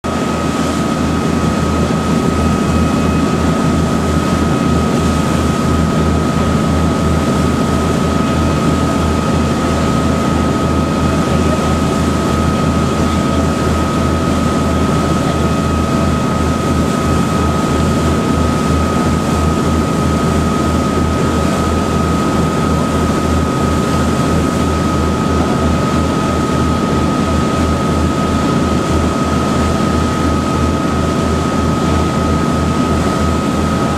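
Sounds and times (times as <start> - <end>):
high engine whine: 0.0 - 33.9
boat engine throbbing: 0.1 - 33.9.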